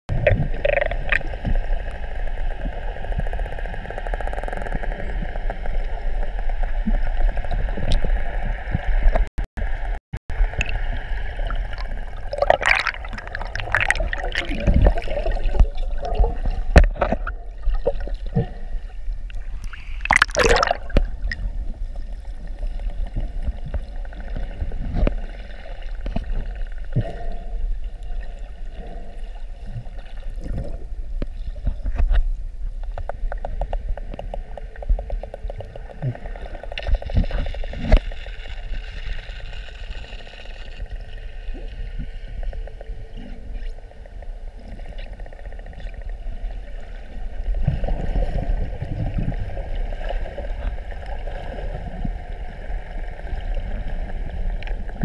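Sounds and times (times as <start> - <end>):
gurgling bubble bursts: 0.1 - 1.8, 10.3 - 21.8
underwater water rush: 0.1 - 32.2, 33.1 - 55.0.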